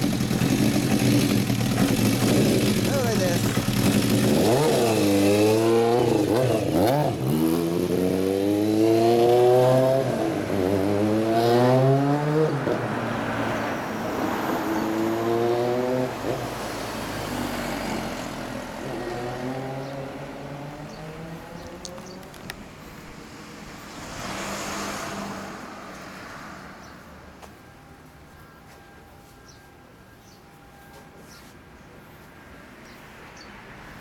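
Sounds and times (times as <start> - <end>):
motorcycle engine revving and shifting: 0.0 - 13.0, 14.6 - 22.6.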